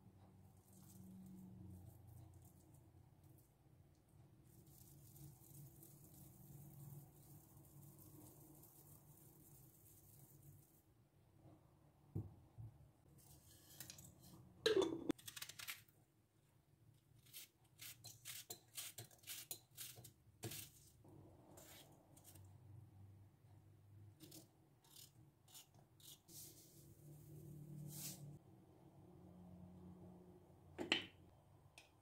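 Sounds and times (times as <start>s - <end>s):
knife scrape: 13.2s - 14.4s, 17.2s - 21.0s, 21.6s - 22.5s, 24.2s - 28.4s
knife slicing onion: 17.2s - 21.0s, 24.2s - 26.7s.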